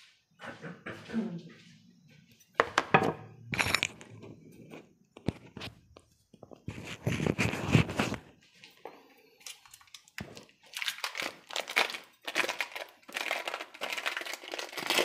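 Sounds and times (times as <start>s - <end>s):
packaging crinkling: 9.4s - 15.0s.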